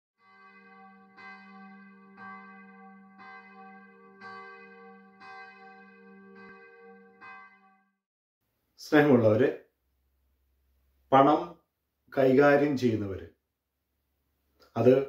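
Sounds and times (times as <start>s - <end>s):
church bell tolling: 0.2s - 8.0s.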